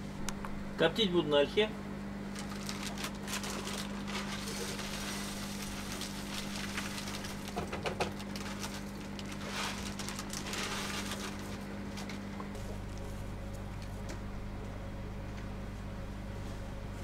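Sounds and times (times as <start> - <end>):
wood chips rustling and clicking: 2.3 - 13.0.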